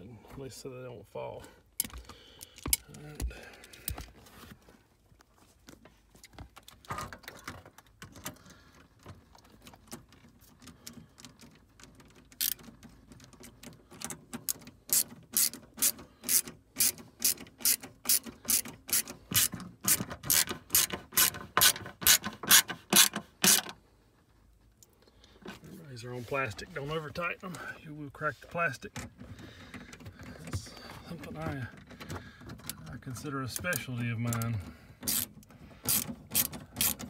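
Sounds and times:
ratchet wrench clicking: 12.4s - 12.7s, 14.5s - 23.7s, 35.1s - 37.0s.

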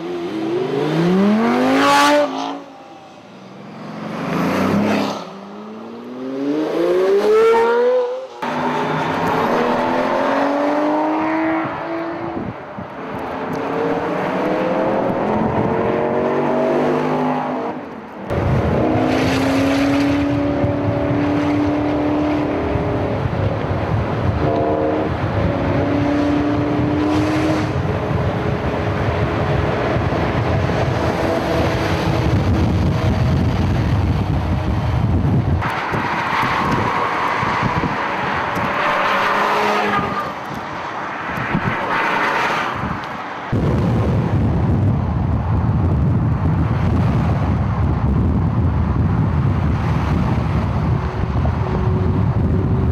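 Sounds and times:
supercar engines revving: 0.0s - 3.0s
road and wind noise: 0.0s - 52.9s.

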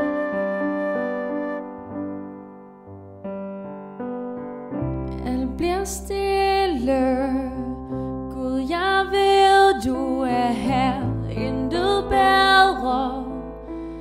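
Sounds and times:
piano: 0.0s - 14.0s
bass: 4.8s - 14.0s.

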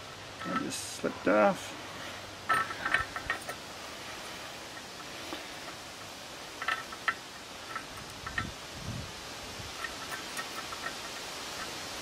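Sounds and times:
steady hiss: 0.0s - 12.0s
small metal clicks and ticks: 0.4s - 0.9s, 2.5s - 3.6s, 4.7s - 8.6s, 9.7s - 12.0s.

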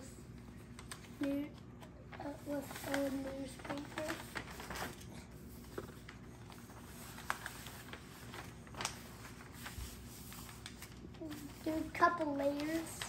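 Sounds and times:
newspaper rustling: 0.6s - 13.0s
paper crinkling: 0.6s - 13.0s.

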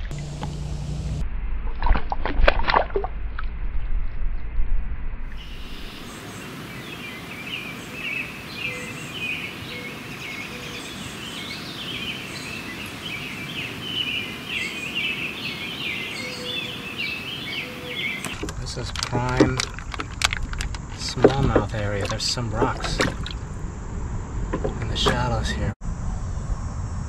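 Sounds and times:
water splashing: 0.0s - 3.5s, 16.7s - 23.7s
low microphone rumble: 0.0s - 6.1s
birds chirping: 5.4s - 25.8s.

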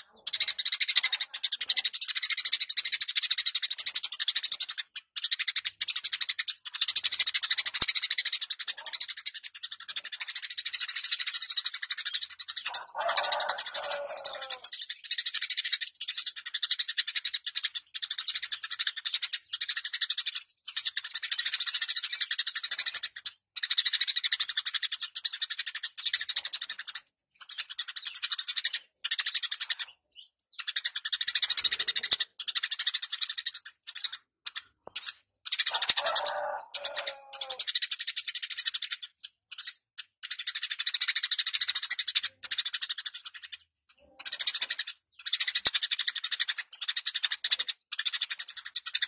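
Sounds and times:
sparrow chirping and chattering: 0.0s - 49.0s
lower falling bird call: 12.7s - 14.7s, 35.7s - 37.6s.

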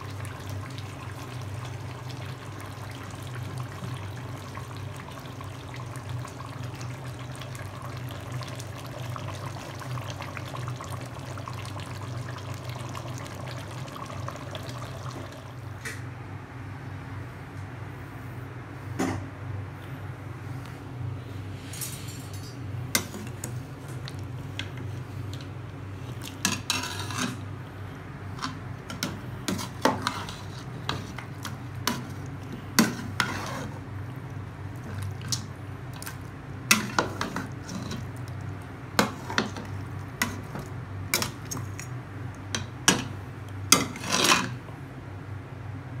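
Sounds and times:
metal spatula scraping pot: 26.5s - 27.4s, 29.0s - 31.2s, 32.8s - 33.8s, 43.7s - 44.6s.

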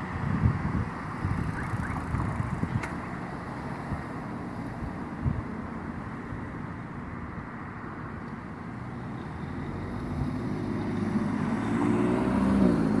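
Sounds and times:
street traffic hum: 0.0s - 13.0s
car engine pulling away: 9.7s - 13.0s.

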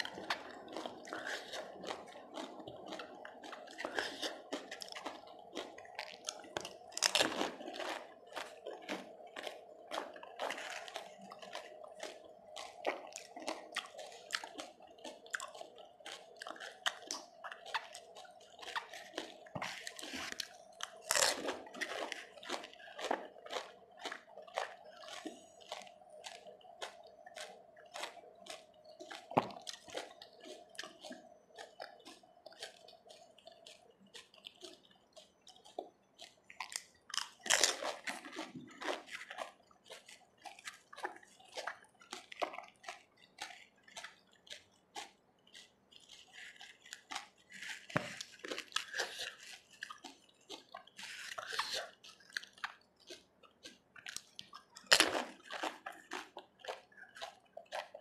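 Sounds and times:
crisp shells crunching: 0.0s - 11.1s
wet slurping: 0.0s - 36.5s, 46.1s - 53.2s.

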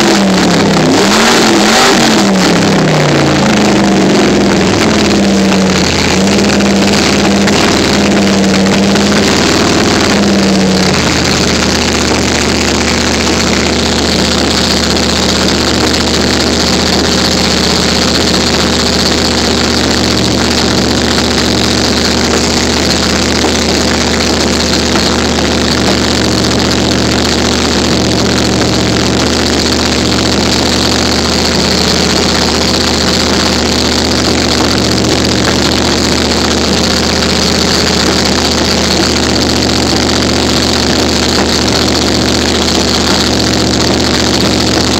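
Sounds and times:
car engine idling: 0.0s - 44.9s.

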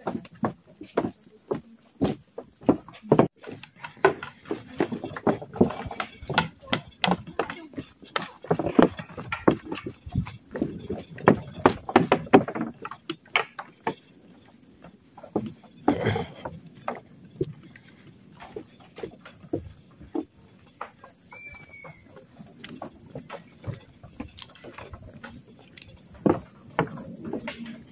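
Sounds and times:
footsteps on wooden boardwalk: 0.0s - 27.9s
high insect drone: 0.0s - 27.9s.

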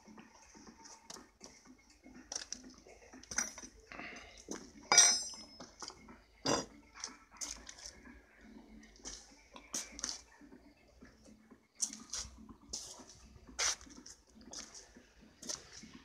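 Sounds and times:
light metallic clinks: 3.3s - 3.7s, 4.9s - 5.7s
loud ringing metal clank: 4.9s - 5.6s.

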